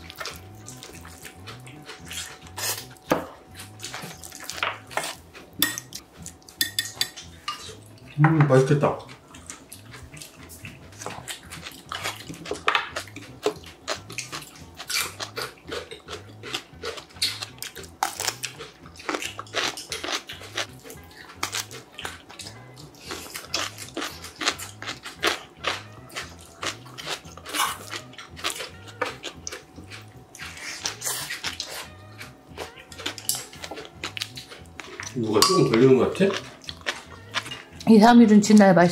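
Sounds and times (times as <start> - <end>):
wet chewing: 0.0 - 8.2, 8.9 - 38.8
crisp crunches of food: 23.0 - 32.0.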